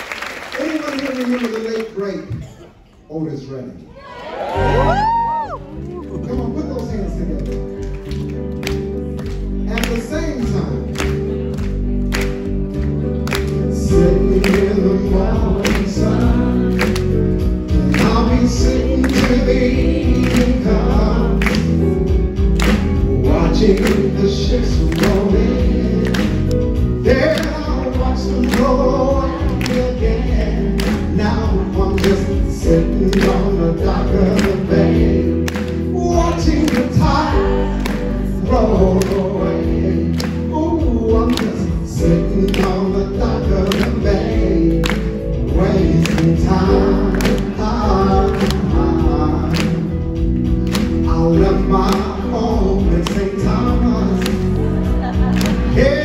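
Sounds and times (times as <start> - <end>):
amplified band with drum beat: 10.5 - 56.0
man singing into microphone: 13.6 - 22.0, 22.8 - 50.2, 50.8 - 56.0.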